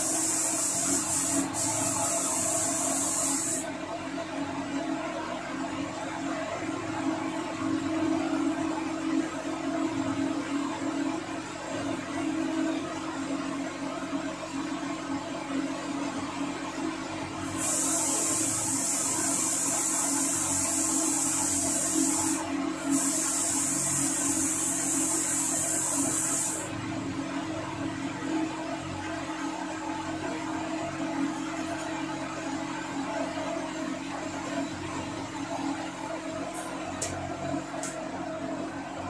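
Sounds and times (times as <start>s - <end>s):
paint spray gun hissing: 0.0s - 3.7s, 17.5s - 26.7s.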